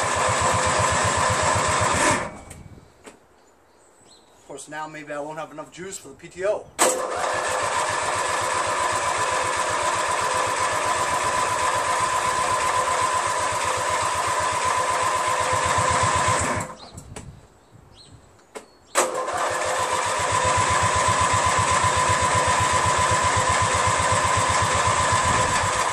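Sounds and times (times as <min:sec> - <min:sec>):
electric starter cranking engine: 0:00.0 - 0:02.6, 0:06.8 - 0:16.9, 0:19.0 - 0:25.9.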